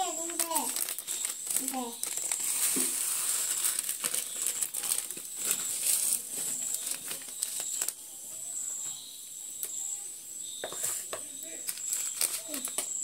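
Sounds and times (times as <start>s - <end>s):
plastic packets crinkling: 0.0s - 8.0s, 11.6s - 12.9s.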